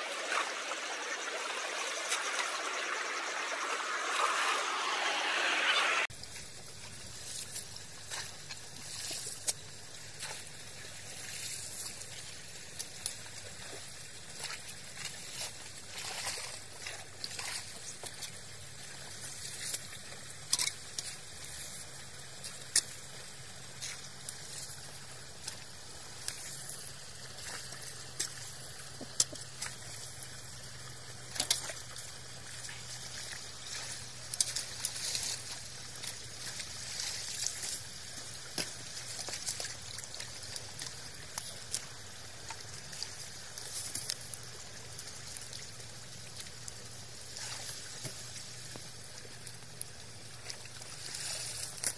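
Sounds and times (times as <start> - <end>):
water splashing and trickling: 0.0 - 51.9
small splashes and drips: 6.3 - 51.9.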